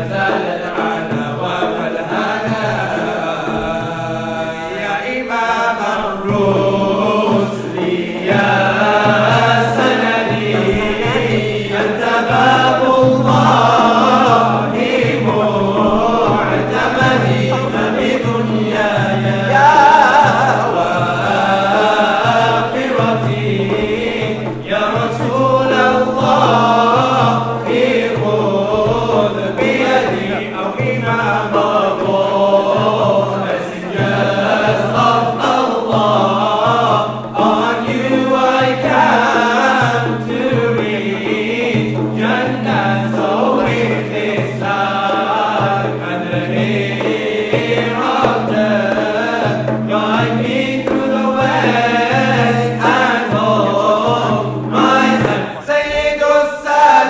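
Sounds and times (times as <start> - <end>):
frame drums beating: 0.0 - 57.0
men singing in unison: 0.0 - 57.0.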